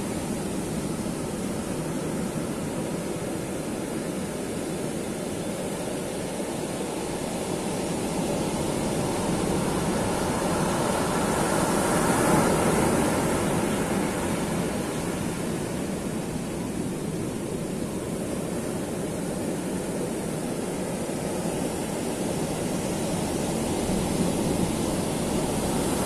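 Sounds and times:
ocean waves breaking on beach: 0:00.0 - 0:26.0.

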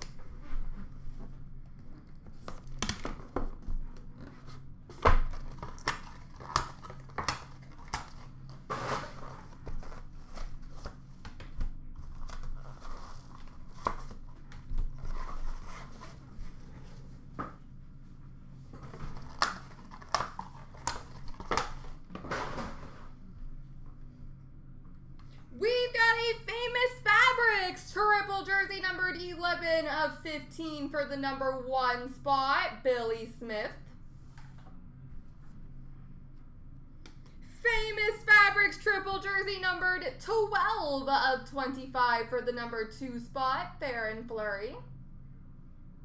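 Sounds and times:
faint low hum: 0:00.0 - 0:46.0
wrapping tearing and crinkling: 0:05.3 - 0:11.0, 0:12.0 - 0:16.0, 0:19.0 - 0:22.0.

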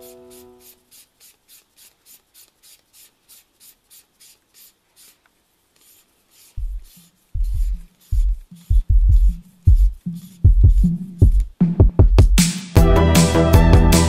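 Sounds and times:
rhythmic rasping of lens barrel twisting: 0:00.3 - 0:11.6
music with heavy bass thumps: 0:07.5 - 0:14.0.

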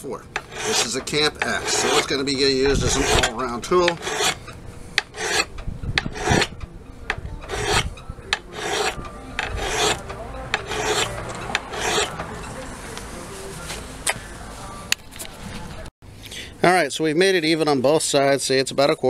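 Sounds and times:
file rasping on steel: 0:00.4 - 0:12.6.

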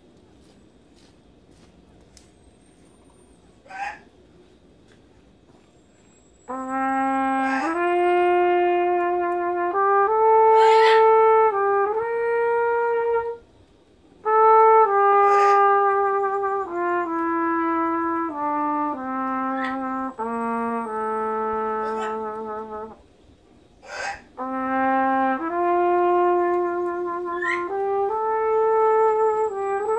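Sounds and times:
solo trumpet melody: 0:06.0 - 0:23.2, 0:24.3 - 0:29.9.

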